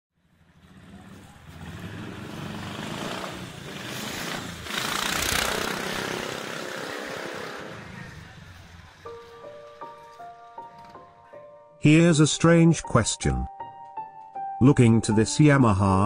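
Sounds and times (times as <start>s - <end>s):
motorcycle engine passing: 0.2s - 10.9s.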